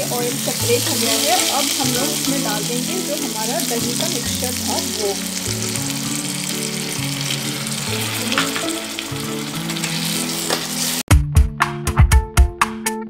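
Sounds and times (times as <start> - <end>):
soft background music: 0.0 - 11.0
food sizzling in hot oil: 0.0 - 11.1
music with drums and plucked strings: 0.0 - 13.0
metal spatula stirring: 6.4 - 11.0.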